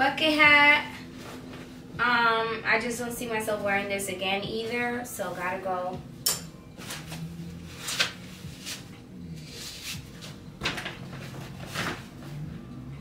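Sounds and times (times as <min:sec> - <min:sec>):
items rustling and knocking: 0:06.5 - 0:08.9, 0:09.8 - 0:12.5.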